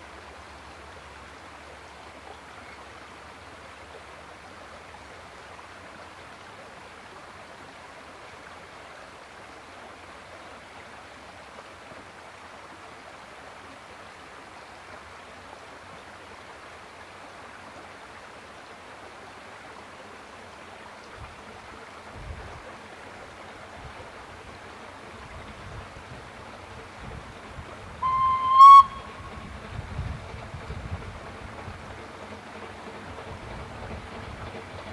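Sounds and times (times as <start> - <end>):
approaching steam train rumble: 21.3 - 34.9
steam engine whistle: 28.0 - 29.8.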